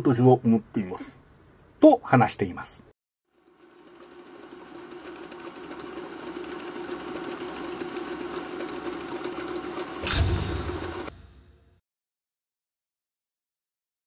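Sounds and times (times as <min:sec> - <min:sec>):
film projector whirring and clattering: 0:03.3 - 0:11.1.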